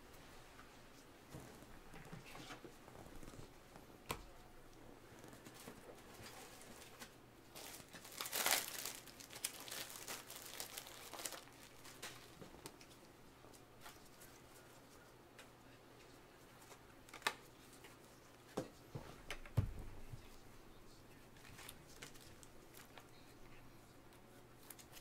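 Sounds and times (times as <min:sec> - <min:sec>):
plastic packaging rustling: 0:05.4 - 0:12.8.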